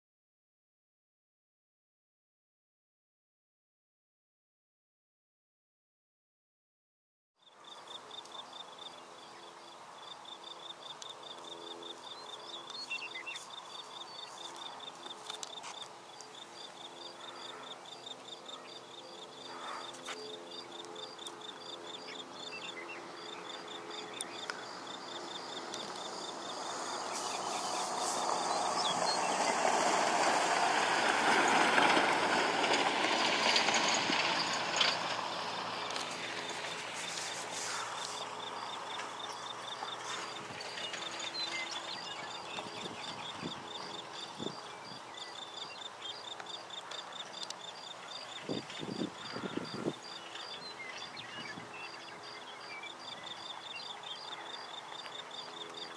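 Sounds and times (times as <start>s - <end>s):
insect trilling: 7.6s - 29.9s, 34.4s - 55.9s
broad rushing noise: 22.2s - 44.9s.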